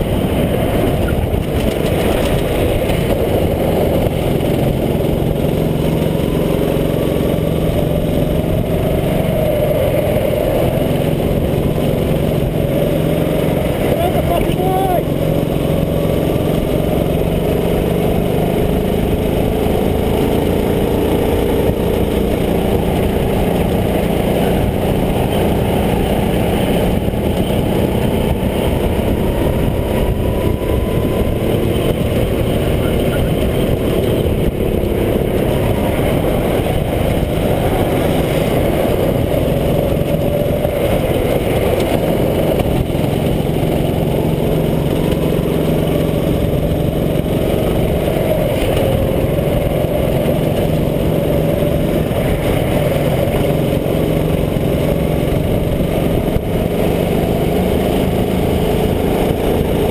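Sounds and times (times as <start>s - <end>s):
kart engine running hard: 0.0s - 59.9s.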